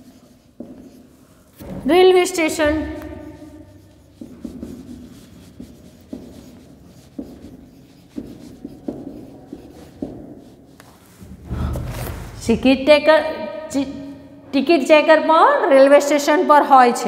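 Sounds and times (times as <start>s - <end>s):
marker writing on whiteboard: 0.0s - 11.4s.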